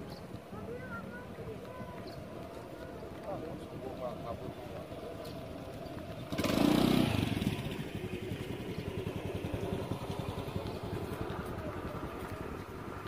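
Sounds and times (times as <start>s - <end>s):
small engine running: 3.5s - 13.0s.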